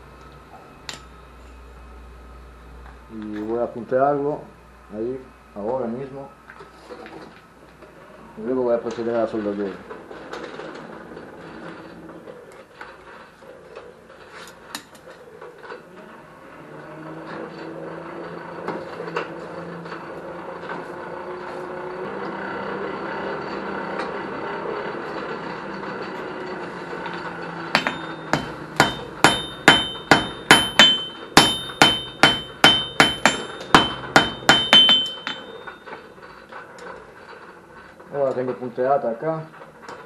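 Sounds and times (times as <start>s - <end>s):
forge blower hum: 15.8s - 38.0s
anvil ringing: 27.7s - 35.9s
hammer striking steel on anvil: 27.7s - 35.9s.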